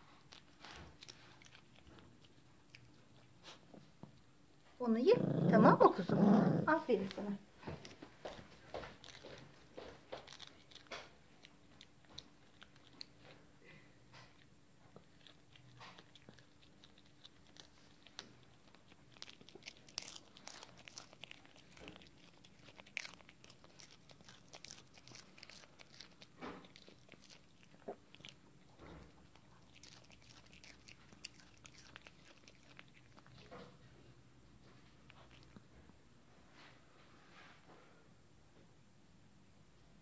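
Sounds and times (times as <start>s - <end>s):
dog chewing crunchy treat: 0.0s - 3.9s, 7.0s - 34.0s, 34.6s - 35.8s.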